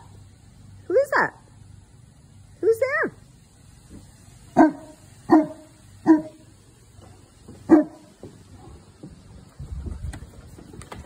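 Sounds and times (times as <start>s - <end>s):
dog barking: 4.6s - 6.5s, 7.7s - 8.7s.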